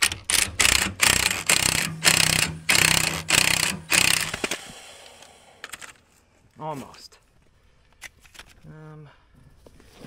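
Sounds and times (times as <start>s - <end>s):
impact wrench hammering: 0.0s - 4.8s.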